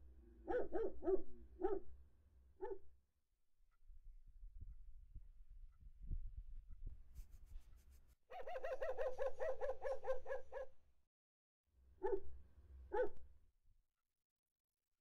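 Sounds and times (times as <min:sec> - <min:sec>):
dog barking: 0:00.4 - 0:01.9, 0:02.6 - 0:02.9, 0:08.6 - 0:10.7, 0:12.0 - 0:12.3, 0:12.9 - 0:13.2.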